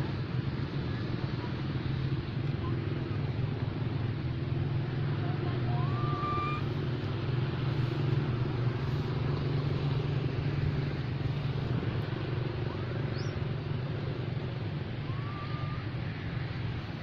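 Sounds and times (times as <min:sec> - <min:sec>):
steady low rumble: 0:00.0 - 0:17.0
whistle-like call: 0:05.7 - 0:06.7, 0:15.0 - 0:15.9.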